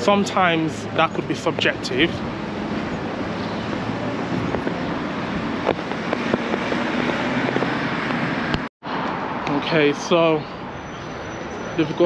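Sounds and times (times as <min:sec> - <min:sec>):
traffic hum: 0:00.0 - 0:12.0
wind on microphone: 0:01.4 - 0:08.7.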